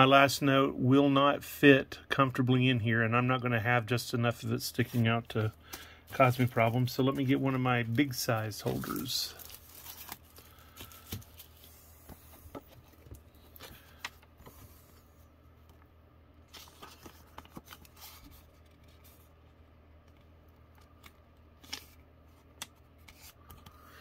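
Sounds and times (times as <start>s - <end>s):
low steady hum: 0.0s - 24.0s
banknote and plastic holders crinkling: 4.8s - 14.4s.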